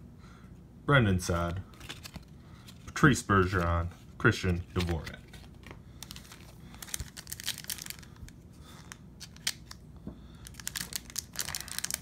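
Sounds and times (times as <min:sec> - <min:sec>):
foil wrapper crinkling and tearing: 0:06.0 - 0:09.8, 0:10.4 - 0:12.0.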